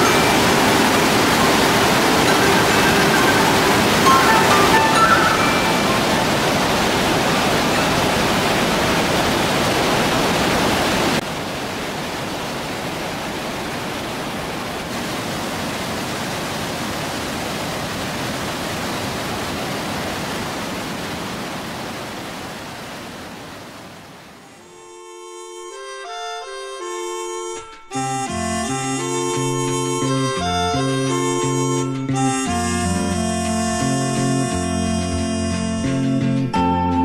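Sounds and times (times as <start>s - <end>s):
waterfall rushing: 0.0s - 24.6s.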